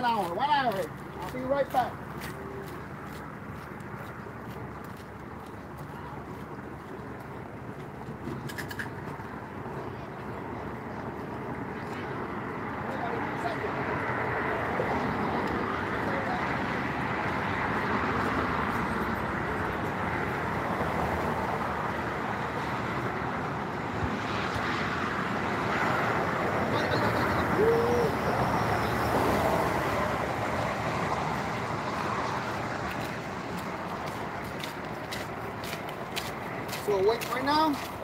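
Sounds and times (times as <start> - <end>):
outdoor background noise: 0.0 - 38.0
faint rising and falling call: 26.6 - 30.2.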